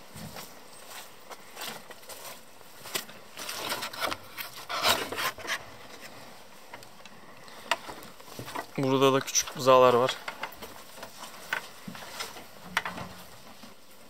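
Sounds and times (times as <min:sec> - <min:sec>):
wooden door scraping frame: 0:03.6 - 0:05.6.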